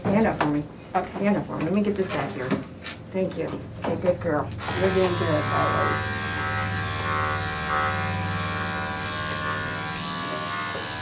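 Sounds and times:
electric clippers buzzing: 4.5 - 11.0.

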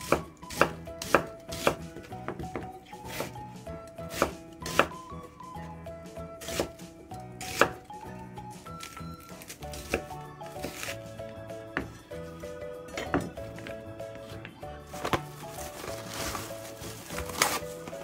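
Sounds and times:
knife chopping on cutting board: 0.0 - 3.4, 4.0 - 5.0, 6.4 - 6.8, 7.4 - 7.8, 8.8 - 11.0
background music: 0.0 - 18.0.

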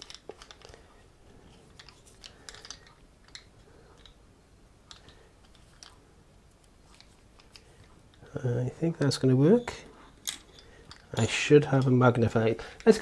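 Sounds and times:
small screws clicking: 0.0 - 0.8, 1.7 - 4.2.

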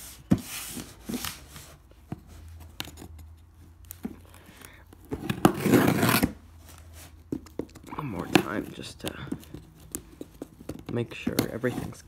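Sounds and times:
knife scraping packing tape: 5.3 - 6.4.

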